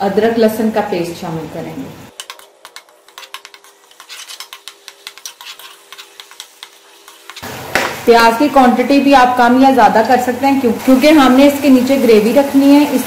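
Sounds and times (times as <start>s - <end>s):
onions sizzling in oil: 1.8s - 13.0s
spoon clinking and scraping pot: 2.1s - 7.4s.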